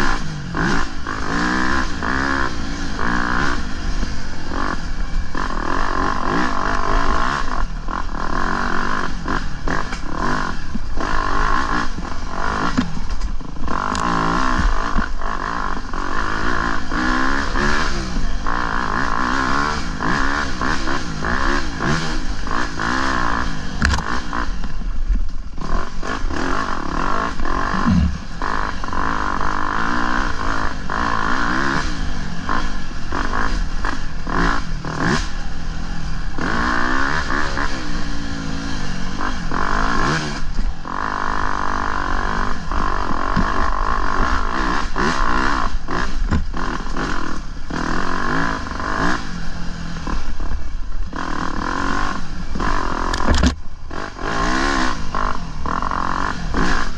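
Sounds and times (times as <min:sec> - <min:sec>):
dirt bike engine revving: 0:00.0 - 0:56.9.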